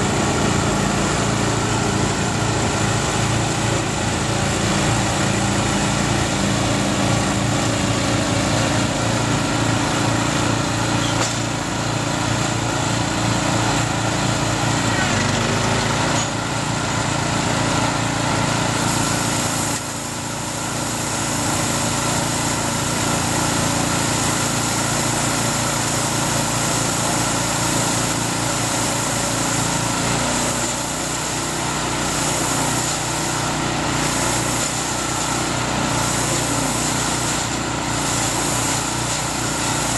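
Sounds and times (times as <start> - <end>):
small engine running steadily: 0.0 - 39.9.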